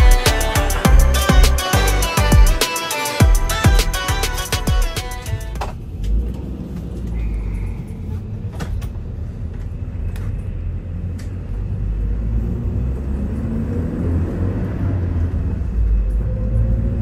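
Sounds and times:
bus engine rumbling: 0:03.2 - 0:17.0.

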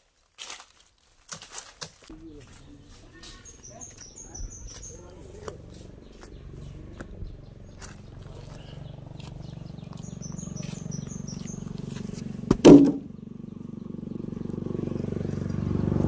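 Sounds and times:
bird chirping: 0:02.1 - 0:14.6
small engine pulsing hum: 0:02.1 - 0:16.0
loud knock: 0:12.5 - 0:13.1.

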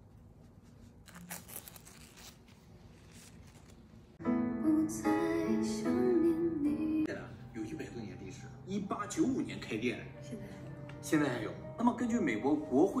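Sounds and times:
plastic sheet rustling and tearing: 0:00.8 - 0:04.2.

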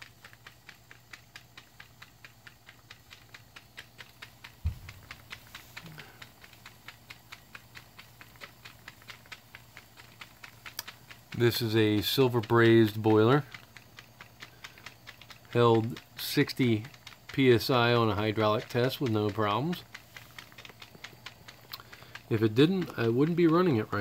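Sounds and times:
model steam engine chugging: 0:00.0 - 0:24.0
steady low hum: 0:00.0 - 0:24.0
dull thump: 0:04.6 - 0:05.2.

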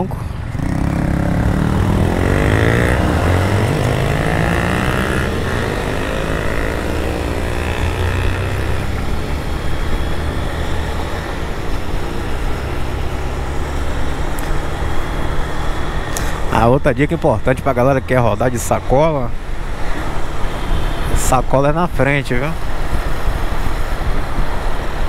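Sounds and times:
motorcycle engine revving: 0:00.4 - 0:18.2
motorcycle engine running steadily: 0:00.4 - 0:18.3
wind noise: 0:22.6 - 0:25.0.

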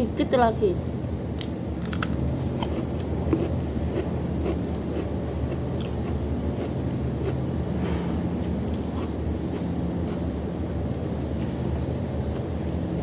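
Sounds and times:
low machine hum: 0:00.0 - 0:13.0
chewing: 0:02.6 - 0:07.4, 0:08.4 - 0:10.3.

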